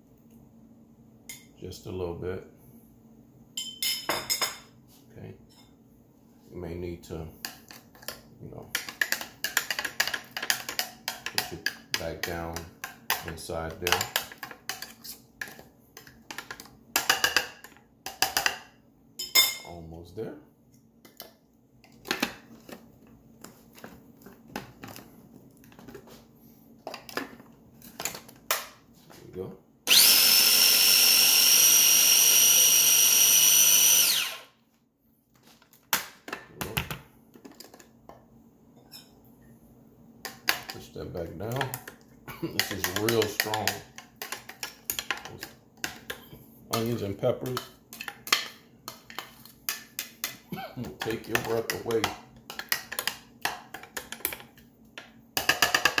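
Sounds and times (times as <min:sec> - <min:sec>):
food chopper motor whining: 0:29.9 - 0:34.5.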